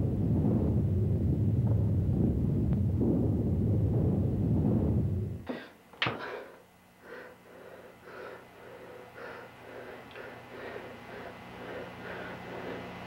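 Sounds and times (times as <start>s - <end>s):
low rumbling noise: 0.0s - 13.0s
man breathing heavily: 5.5s - 13.0s.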